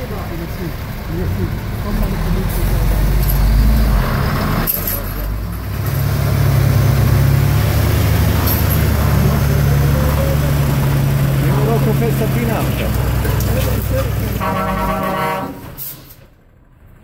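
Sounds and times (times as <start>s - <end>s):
heavy truck diesel engine under load: 0.0s - 17.0s.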